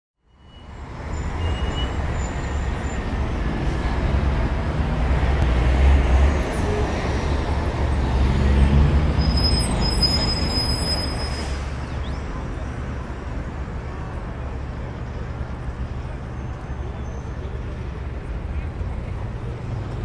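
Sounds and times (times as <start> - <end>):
faint high squeal: 0.2 - 3.3, 9.1 - 12.4
city road traffic rumble: 0.2 - 20.0.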